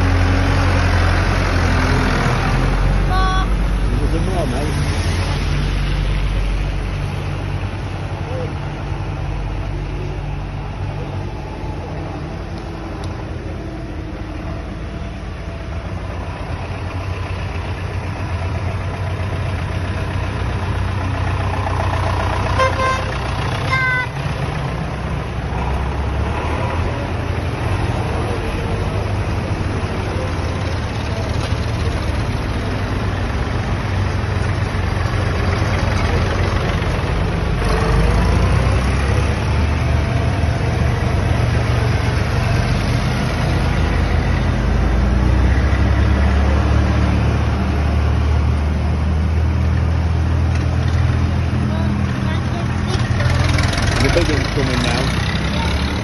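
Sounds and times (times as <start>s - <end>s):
tractor engines passing: 0.0s - 56.0s
horn tooting: 22.4s - 24.2s.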